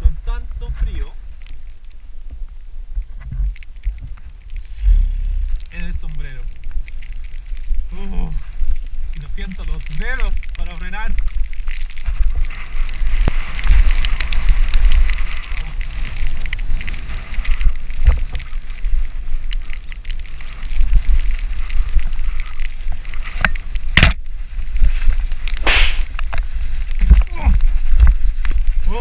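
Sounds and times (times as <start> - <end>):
bike rattling: 0.0 - 29.0
tyre and mud noise: 0.0 - 29.0
sharp knock from a jolt: 25.6 - 26.1
burst of hiss: 25.6 - 26.2.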